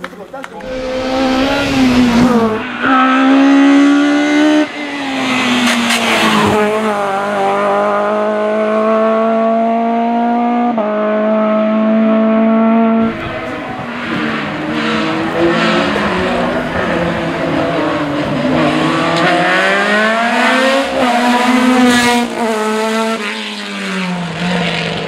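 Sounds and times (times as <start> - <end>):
race car engine accelerating: 0.6 - 25.0.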